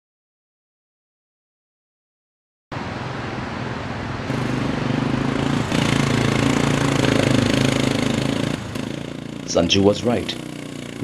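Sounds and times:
motorcycle engines on rough ground: 0:04.3 - 0:11.0.

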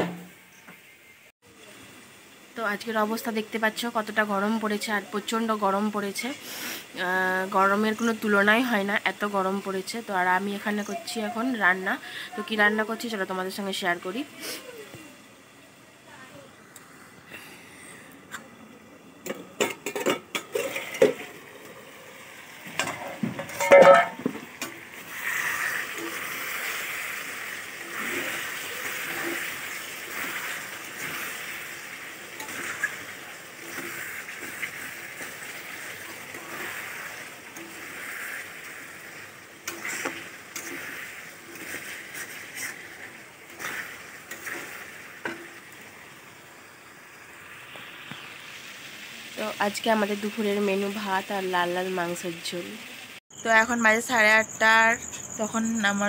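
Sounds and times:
food sizzling in hot oil: 0:00.1 - 0:17.2, 0:19.0 - 0:56.0
metal pan and lid clattering: 0:19.3 - 0:21.3, 0:22.7 - 0:24.8
metal spatula scraping pan: 0:22.8 - 0:24.3, 0:25.1 - 0:45.6.

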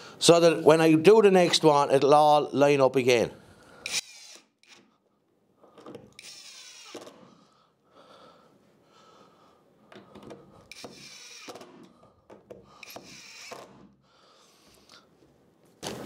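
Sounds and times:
cordless drill motor whirring: 0:03.8 - 0:04.8, 0:06.1 - 0:07.3, 0:10.7 - 0:11.8, 0:12.8 - 0:13.8.

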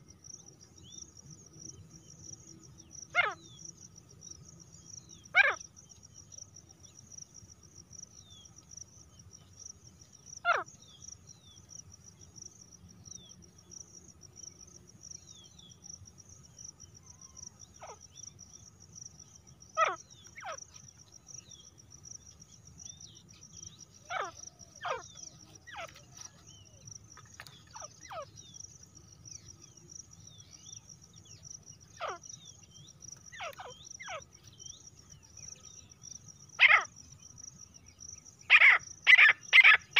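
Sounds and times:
insect chorus: 0:00.0 - 0:39.9
birds giving sharp calls: 0:38.5 - 0:39.9.

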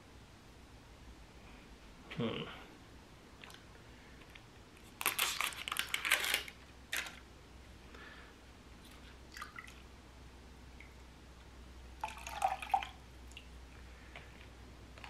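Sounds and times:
plastic cup crinkling: 0:04.8 - 0:07.2.

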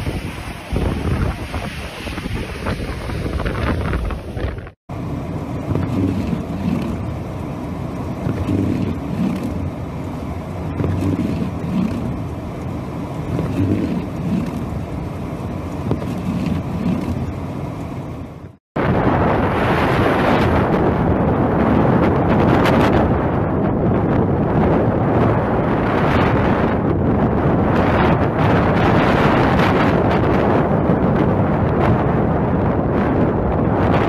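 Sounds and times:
wind gusting against microphone: 0:00.0 - 0:07.3, 0:18.8 - 0:34.0
wind against car: 0:00.0 - 0:07.4, 0:08.1 - 0:34.0
car engine and road rumble: 0:03.8 - 0:18.6.

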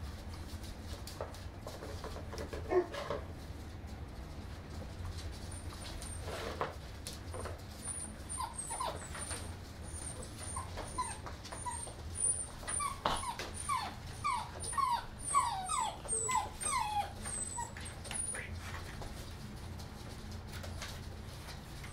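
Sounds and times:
puppies whimpering: 0:07.7 - 0:18.6.

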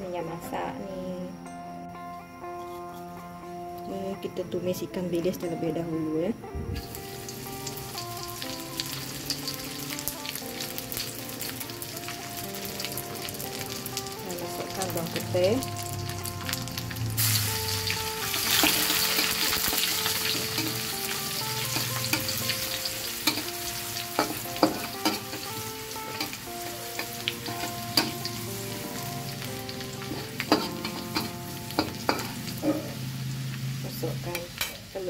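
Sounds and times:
food sizzling in hot oil: 0:06.6 - 0:35.0
metal spatula scraping a wok: 0:30.0 - 0:33.0.

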